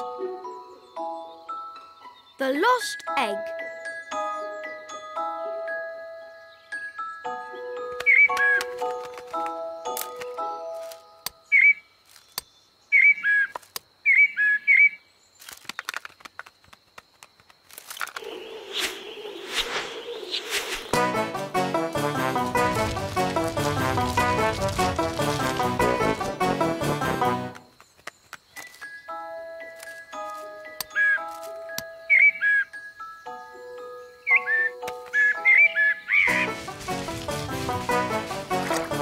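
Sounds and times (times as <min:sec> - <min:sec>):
gentle cartoon background music: 0:00.0 - 0:11.8, 0:20.9 - 0:27.8, 0:28.5 - 0:39.0
whistled bird chirps: 0:07.6 - 0:08.6, 0:11.2 - 0:15.1, 0:18.2 - 0:21.0, 0:30.6 - 0:31.3, 0:31.9 - 0:36.3
loud whistled chirp: 0:18.2 - 0:21.1, 0:32.0 - 0:32.8, 0:34.2 - 0:36.5
rustling: 0:21.9 - 0:26.8, 0:36.3 - 0:39.0.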